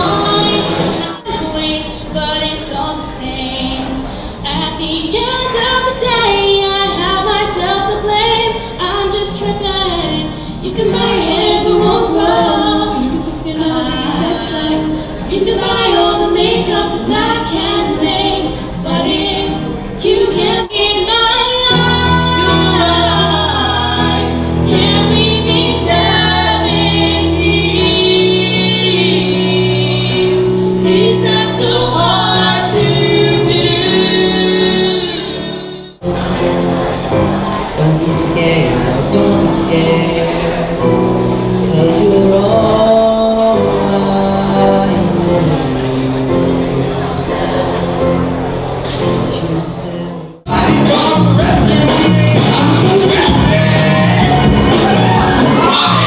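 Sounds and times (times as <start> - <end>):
women singing in harmony: 0.0 - 36.0
held low chords: 50.4 - 56.0.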